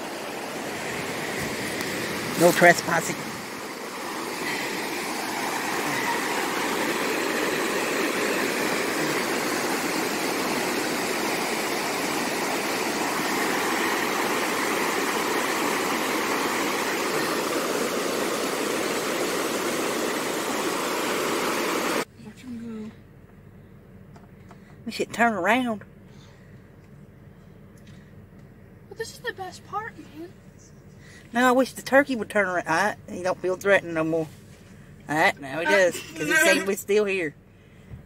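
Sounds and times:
water rushing over rocks: 0:00.0 - 0:22.1.

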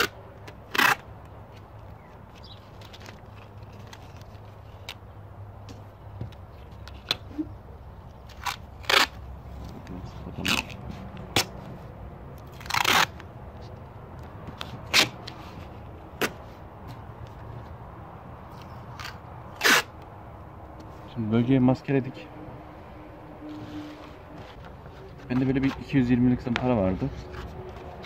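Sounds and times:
masking tape ripping off roll: 0:00.0 - 0:01.1, 0:08.3 - 0:09.2, 0:10.3 - 0:11.6, 0:12.4 - 0:13.3, 0:18.9 - 0:20.0.

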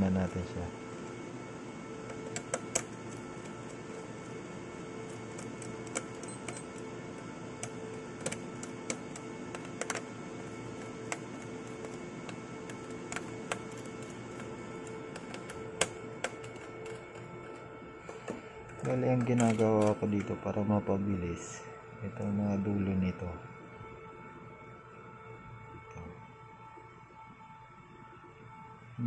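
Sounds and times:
steady hum: 0:00.0 - 0:29.0.

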